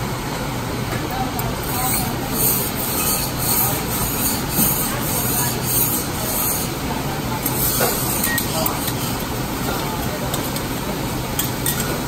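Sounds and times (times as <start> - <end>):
metal spatula scraping griddle: 1.6 - 6.8.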